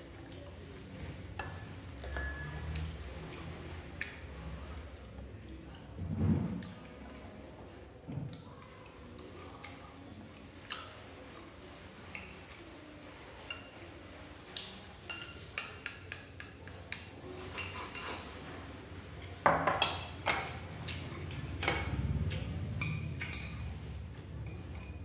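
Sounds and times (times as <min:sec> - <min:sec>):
chopsticks clicking against bowl: 0:15.6 - 0:17.1.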